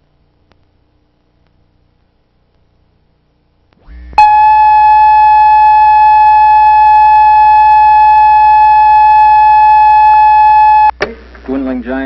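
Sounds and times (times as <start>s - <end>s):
low electrical hum: 0.0s - 12.0s
steady test tone: 3.8s - 11.0s.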